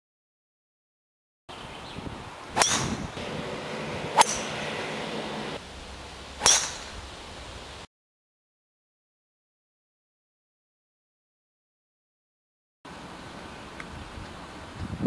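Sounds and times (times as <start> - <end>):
golf club striking ball: 2.6 - 5.6, 6.4 - 7.1.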